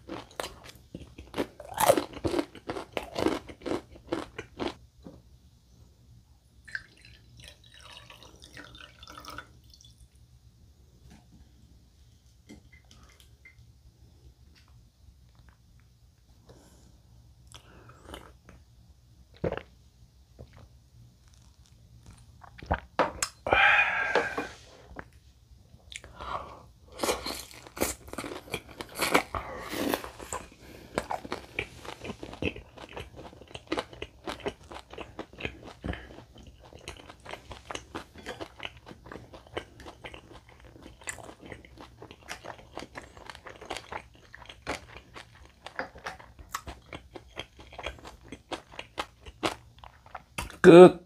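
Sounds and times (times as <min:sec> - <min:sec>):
crunchy chewing of fried food: 0:00.0 - 0:04.8, 0:20.4 - 0:25.1, 0:26.9 - 0:50.6.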